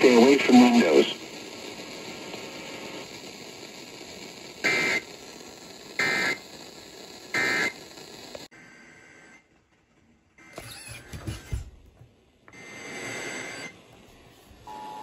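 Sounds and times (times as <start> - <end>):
radio hiss: 0.0 - 9.5, 12.5 - 15.0.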